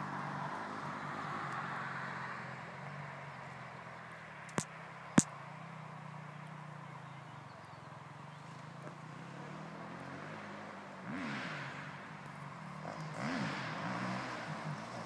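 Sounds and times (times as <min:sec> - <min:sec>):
distant dirt bike: 0:00.0 - 0:15.0
motocross bike engines idling: 0:02.8 - 0:10.1, 0:10.7 - 0:15.0.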